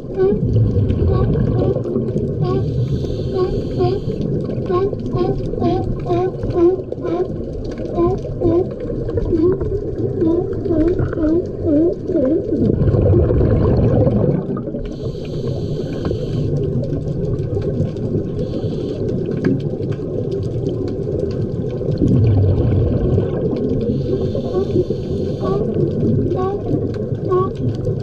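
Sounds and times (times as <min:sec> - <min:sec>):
sea lions calling underwater: 0:00.0 - 0:12.8, 0:23.2 - 0:28.0
diver exhaled bubbles rumbling: 0:00.0 - 0:15.7, 0:19.2 - 0:28.0
regulator inhalation hiss: 0:02.6 - 0:04.2, 0:14.9 - 0:16.6, 0:18.4 - 0:19.1, 0:23.9 - 0:25.6.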